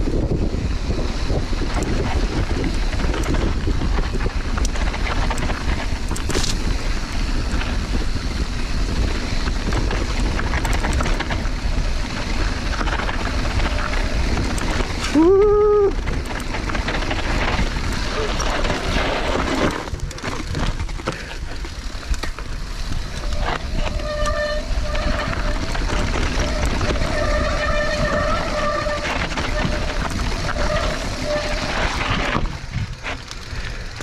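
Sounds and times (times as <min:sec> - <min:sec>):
bike clicks and rattles: 0:00.0 - 0:34.0
tyres rolling on dirt: 0:00.0 - 0:34.0
wind buffeting microphone: 0:00.0 - 0:34.0.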